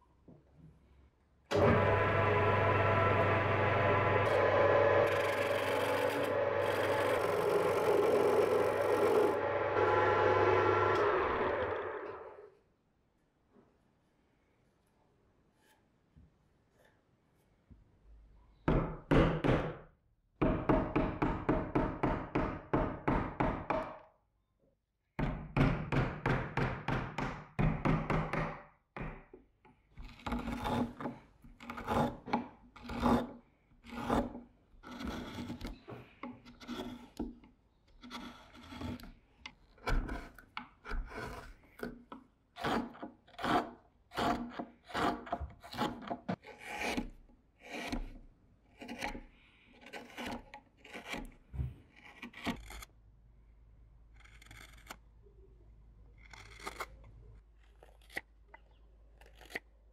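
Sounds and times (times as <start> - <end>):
gouge scraping wood: 4.2 - 12.2, 30.0 - 52.9.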